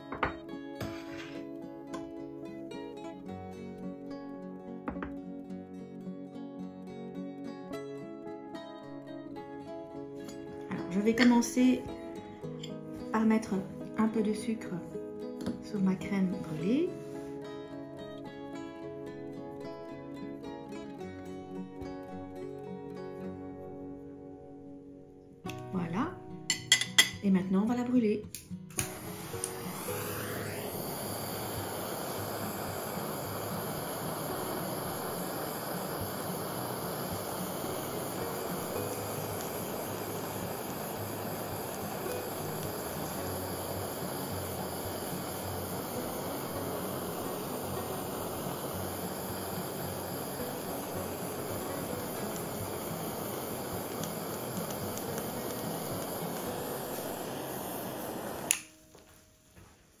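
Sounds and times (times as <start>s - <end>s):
blowtorch flame hissing: 0.0s - 3.8s, 4.8s - 5.2s, 28.7s - 59.0s
sharp click: 58.5s - 58.7s.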